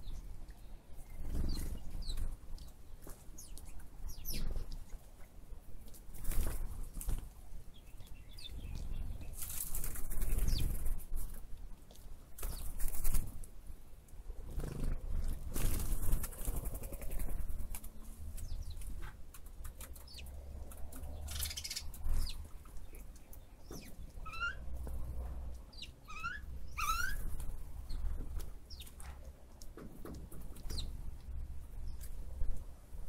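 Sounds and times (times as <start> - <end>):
bird chirping: 0.0 - 4.8, 7.7 - 9.5, 19.8 - 29.1, 30.6 - 31.0.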